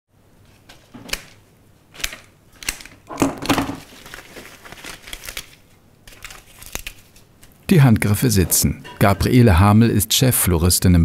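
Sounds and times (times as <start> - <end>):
flower stems rustling in hands: 3.8 - 7.6.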